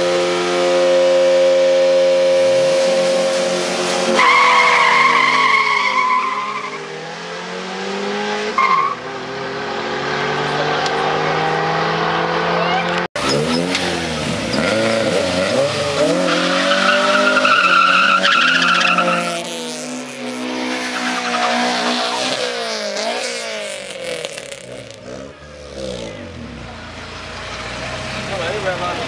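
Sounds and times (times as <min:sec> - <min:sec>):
car engine revving: 0:00.0 - 0:29.0
tyres squealing: 0:04.1 - 0:06.8.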